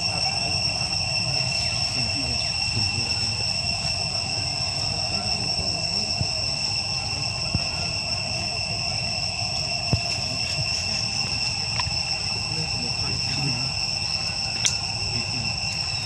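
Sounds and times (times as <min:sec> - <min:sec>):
insects droning: 0:00.0 - 0:16.0
faint clicks: 0:14.6 - 0:14.8.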